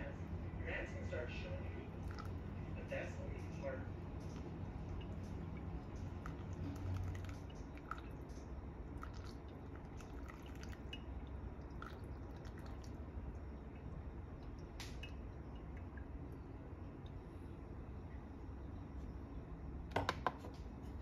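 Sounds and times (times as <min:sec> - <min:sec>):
coffee dripping: 0:01.8 - 0:02.7, 0:04.2 - 0:19.0.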